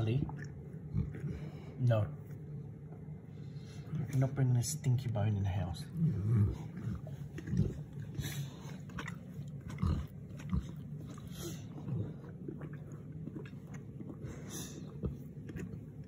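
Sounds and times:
puppy making low vocal sounds: 5.8s - 16.0s.

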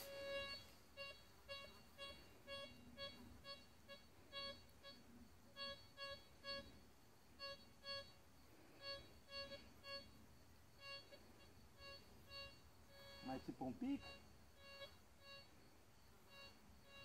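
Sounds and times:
metal detector short beeps: 0.0s - 5.0s, 5.6s - 6.7s, 8.8s - 10.2s, 11.8s - 15.5s.

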